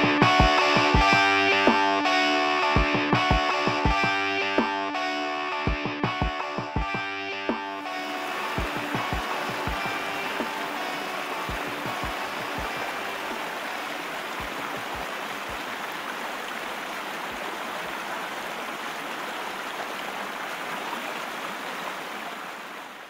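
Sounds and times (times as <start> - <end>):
whitewater rapids rushing: 7.9 - 23.0.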